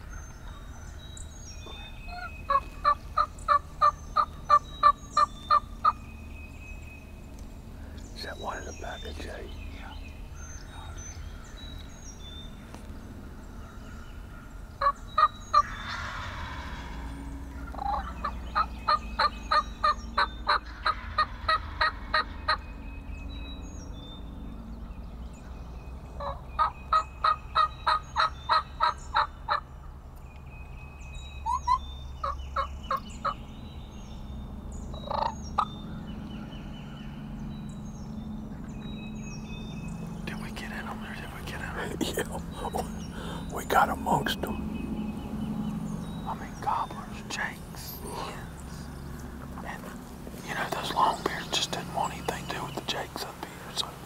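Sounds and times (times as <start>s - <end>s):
wild turkeys calling: 0.0s - 6.1s, 12.6s - 22.7s, 26.2s - 29.8s, 31.4s - 33.4s, 34.9s - 37.0s, 38.6s - 54.0s
songbirds chirping faintly: 0.0s - 54.0s.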